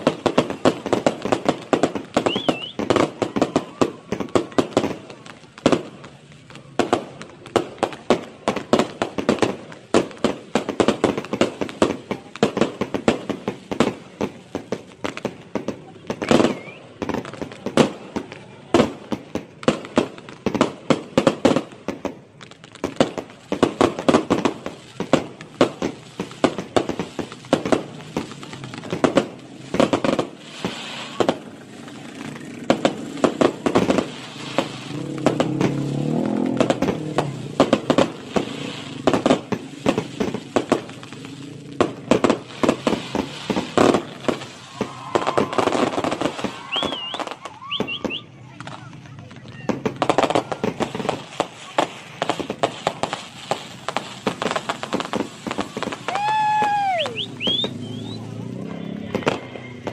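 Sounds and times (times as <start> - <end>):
fireworks bangs and crackling: 0.0 - 59.9.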